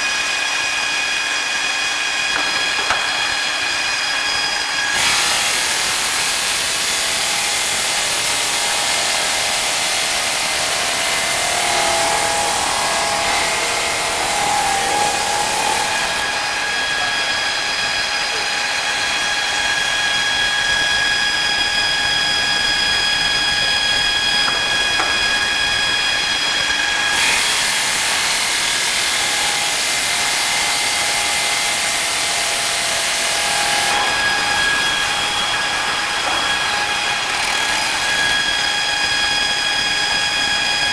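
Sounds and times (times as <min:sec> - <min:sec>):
stone saw blade grinding: 0:04.9 - 0:17.8.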